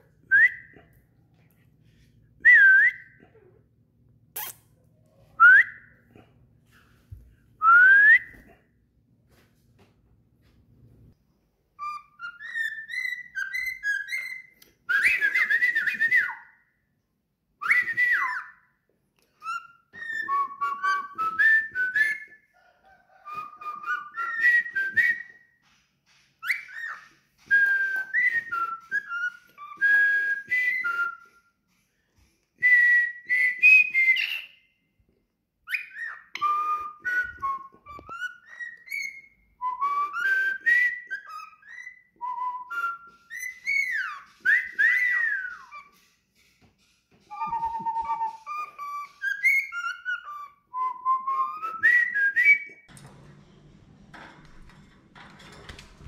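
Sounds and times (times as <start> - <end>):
cockatiel whistling: 11.8 - 16.6, 19.4 - 25.4, 26.1 - 31.4, 32.6 - 34.7, 35.6 - 52.8.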